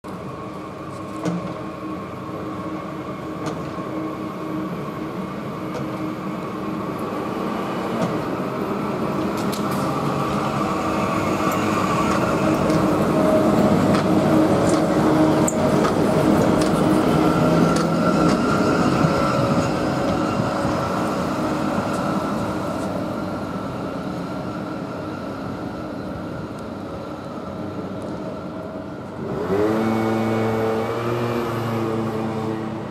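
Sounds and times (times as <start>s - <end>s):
tram passing with electric hum: 0.1s - 32.9s
rolling tyre noise: 7.6s - 23.3s.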